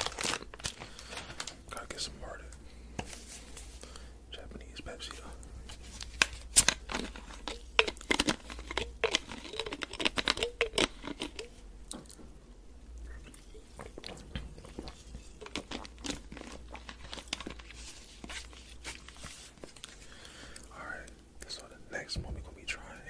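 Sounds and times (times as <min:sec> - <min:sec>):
plastic bottle clicks and crackles: 0:06.1 - 0:12.2
drinking from plastic bottle: 0:07.4 - 0:11.5.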